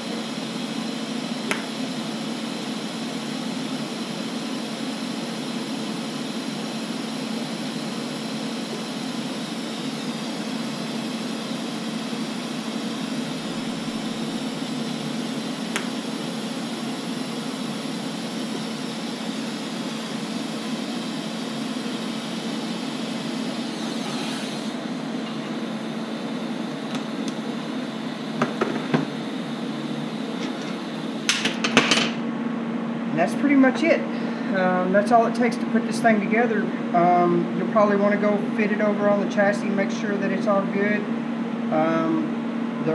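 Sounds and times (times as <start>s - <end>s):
welding arc hissing: 0.0s - 31.5s
constant low hum: 9.9s - 22.0s.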